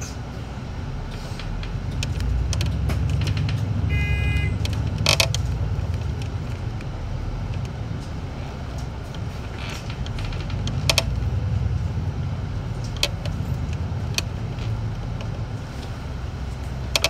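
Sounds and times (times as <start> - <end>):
bus engine and road rumble: 0.0 - 17.0
light rattles: 4.6 - 17.0.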